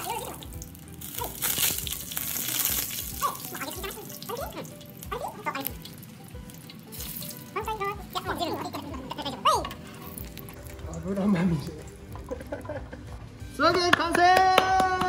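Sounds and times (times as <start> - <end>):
hot oil sizzling: 0.0 - 13.0.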